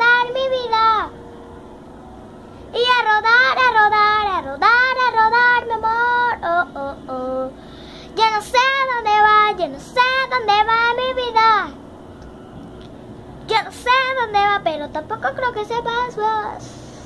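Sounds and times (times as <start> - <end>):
girl singing: 0.0 - 1.2, 2.7 - 11.8, 13.5 - 16.7.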